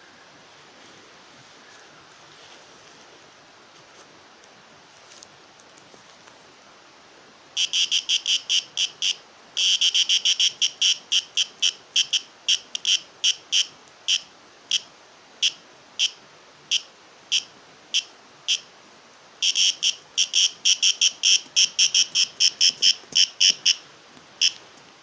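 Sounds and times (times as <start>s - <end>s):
high-pitched animal chirps: 7.6s - 14.8s, 19.4s - 23.8s.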